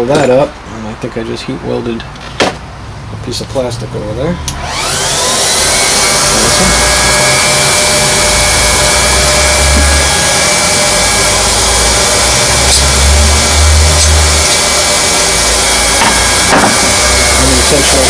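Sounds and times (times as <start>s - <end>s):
hot-air welder blowing: 4.5s - 18.0s
thin fan whine: 4.6s - 18.0s.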